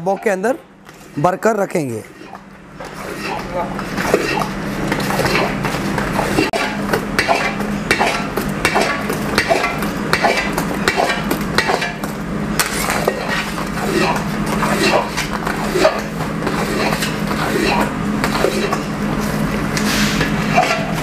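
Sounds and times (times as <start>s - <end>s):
metal ladle scraping pan: 2.1s - 3.5s, 20.5s - 21.0s.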